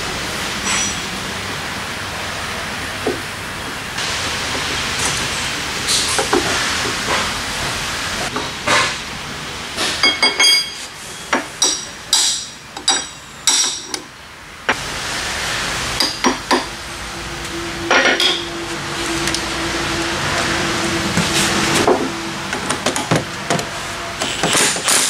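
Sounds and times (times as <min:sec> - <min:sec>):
hammer striking metal: 0:09.8 - 0:14.0, 0:17.9 - 0:18.6.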